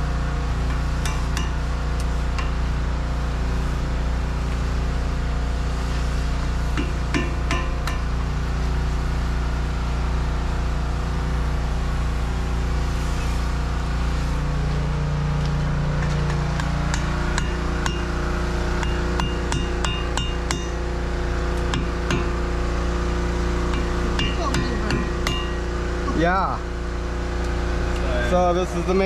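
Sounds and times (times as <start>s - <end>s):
low hum: 0.0s - 29.0s.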